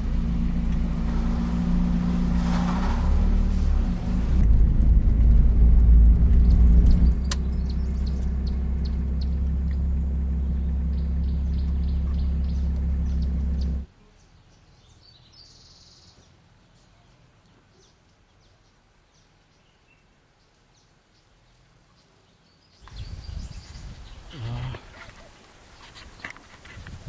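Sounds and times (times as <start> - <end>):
car engine and road noise: 0.0 - 14.4
bird chirp: 6.2 - 24.8.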